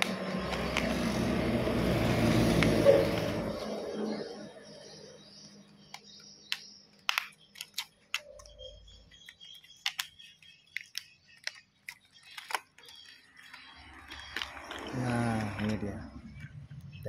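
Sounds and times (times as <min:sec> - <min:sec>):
foil pouch crinkling: 0:05.5 - 0:16.9.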